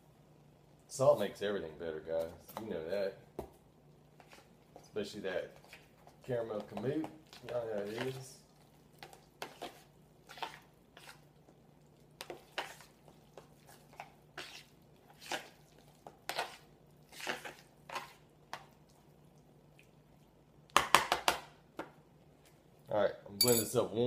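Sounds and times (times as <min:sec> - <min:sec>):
mash squishing in a pan: 0:02.1 - 0:22.9
utensil clinking against pan: 0:23.4 - 0:23.8.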